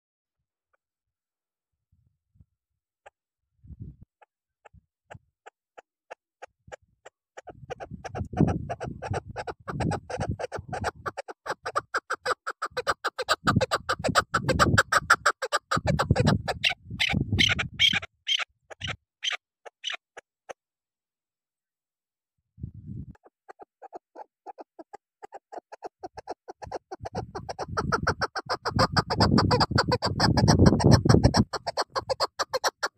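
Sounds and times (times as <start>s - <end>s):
partridge clucking calls: 7.4s - 20.0s, 23.2s - 32.9s.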